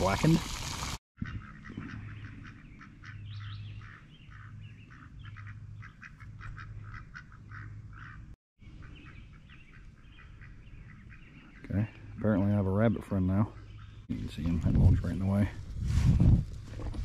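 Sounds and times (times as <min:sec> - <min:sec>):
duck calling: 0:01.2 - 0:11.8.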